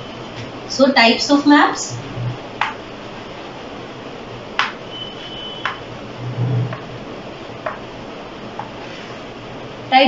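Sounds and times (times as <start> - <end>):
chalk tapping on chalkboard: 4.6 - 4.8, 5.6 - 5.8, 7.6 - 7.8, 8.6 - 8.8.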